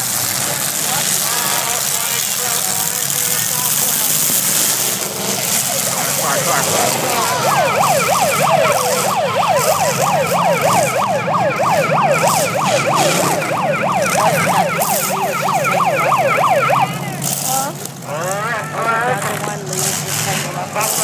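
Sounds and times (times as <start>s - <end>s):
low engine rumble: 0.0s - 21.0s
electronic siren yelping: 4.9s - 17.6s.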